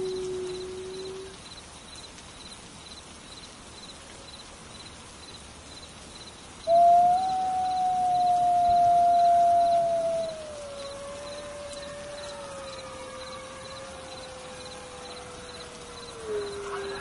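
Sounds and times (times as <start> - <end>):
wolf howling: 0.0 - 1.3, 6.7 - 17.0
cricket chirping: 0.0 - 17.0.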